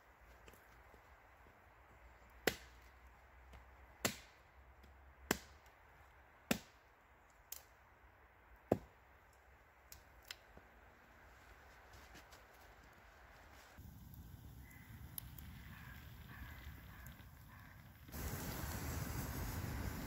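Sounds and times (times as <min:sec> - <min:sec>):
hatchet chopping wood: 0:02.4 - 0:02.7, 0:03.5 - 0:04.4, 0:05.3 - 0:05.7, 0:06.5 - 0:06.8, 0:08.7 - 0:09.0.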